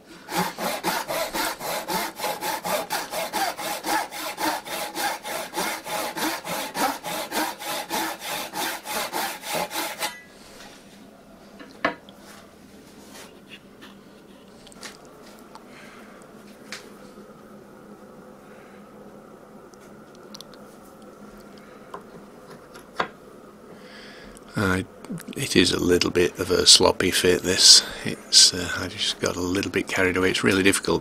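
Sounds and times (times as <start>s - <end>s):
hand saw cutting wood: 0.1s - 10.2s.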